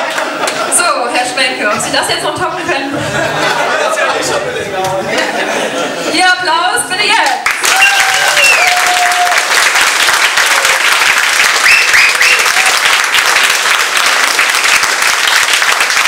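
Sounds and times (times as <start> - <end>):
audience applauding: 0.0 - 0.7, 7.4 - 16.0.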